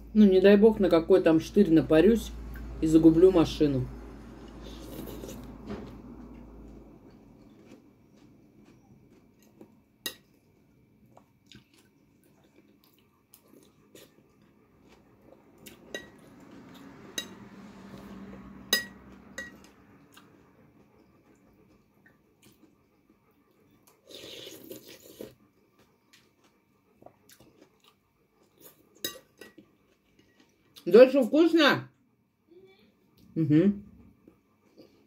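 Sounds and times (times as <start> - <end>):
low hum: 0.0 - 11.1, 13.6 - 23.4
cutlery and dishes clinking: 18.7 - 19.6.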